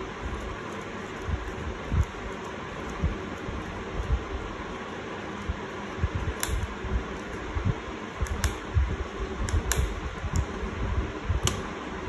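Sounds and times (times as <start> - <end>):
small laptop parts clicking: 6.2 - 7.4, 8.2 - 8.6.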